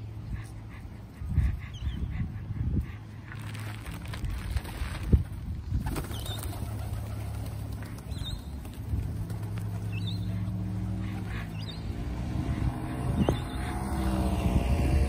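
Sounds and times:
vehicle engine droning: 7.0s - 15.0s.

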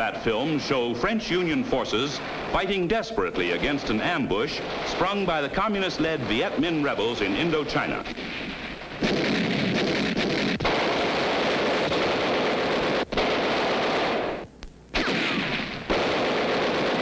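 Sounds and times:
rapid automatic gunfire: 4.0s - 14.4s, 15.0s - 17.0s.

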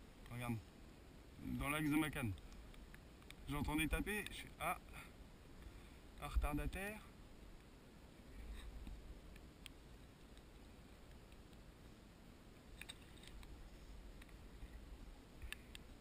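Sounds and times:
faint sharp clicks: 2.2s - 3.5s, 8.6s - 11.7s, 12.7s - 14.8s, 15.4s - 16.0s.

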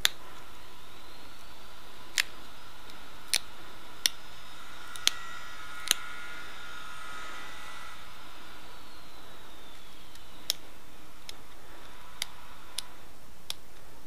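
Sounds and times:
stone flaking clicks: 0.0s - 0.2s, 2.0s - 4.2s, 5.8s - 6.1s.

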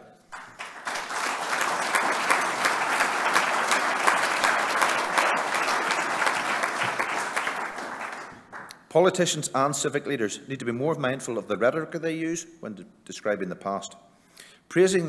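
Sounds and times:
audience applauding: 0.3s - 8.7s.

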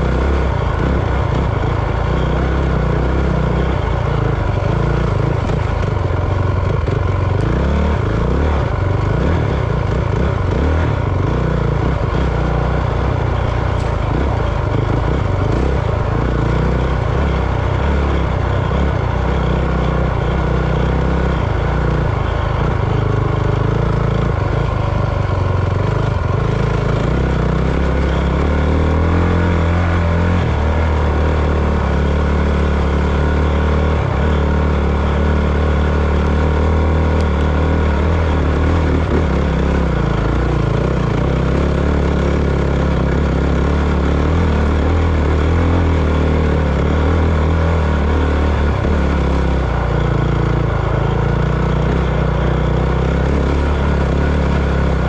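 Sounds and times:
vehicle engine revving: 0.0s - 55.0s.

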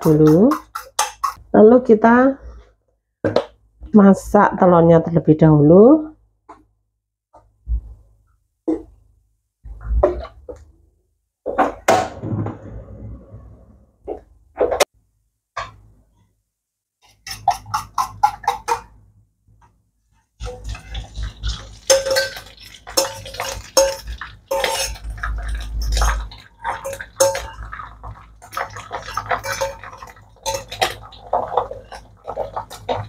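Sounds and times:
metal utensil scraping steel bowl: 17.0s - 18.8s, 20.4s - 33.0s.

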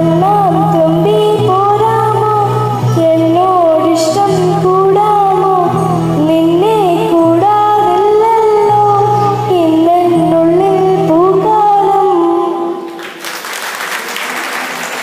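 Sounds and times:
girl singing into a microphone: 0.0s - 12.9s
audience applause: 12.9s - 15.0s.

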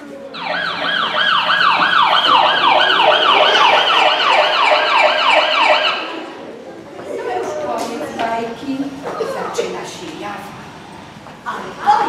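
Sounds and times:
siren yelping wail: 0.4s - 6.5s.

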